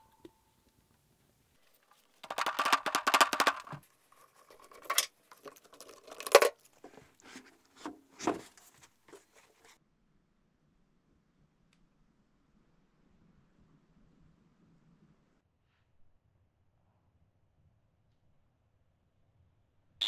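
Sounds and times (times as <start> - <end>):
knocks and scrapes of wood and sand: 3.8 - 9.8.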